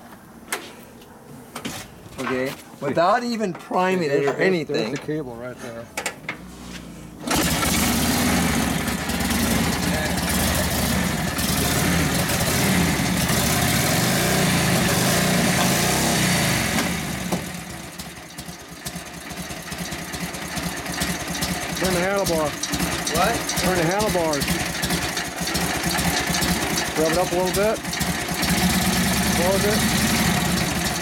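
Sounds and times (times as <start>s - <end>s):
motorcycle engine running: 7.3s - 31.0s.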